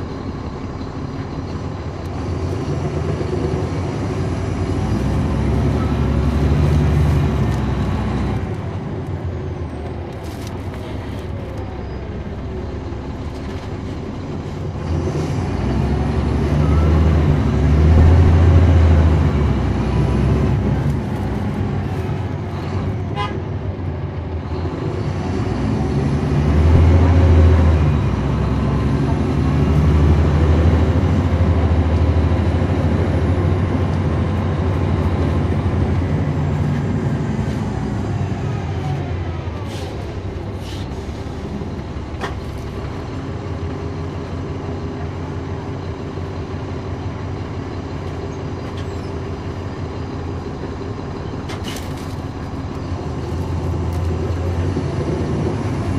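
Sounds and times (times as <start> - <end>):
bus diesel engine rumble: 0.0 - 55.9.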